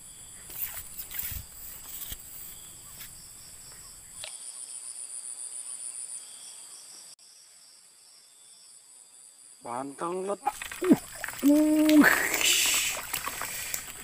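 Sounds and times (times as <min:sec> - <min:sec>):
insect chorus drone: 0:00.0 - 0:14.0
pulsing insect call: 0:00.0 - 0:14.0.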